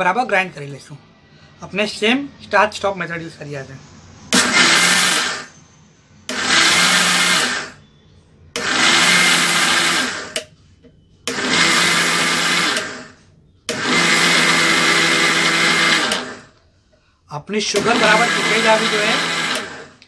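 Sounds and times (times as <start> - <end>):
electric food chopper grinding: 4.4 - 5.5, 6.3 - 7.8, 8.6 - 10.5, 11.3 - 16.6, 17.7 - 20.0.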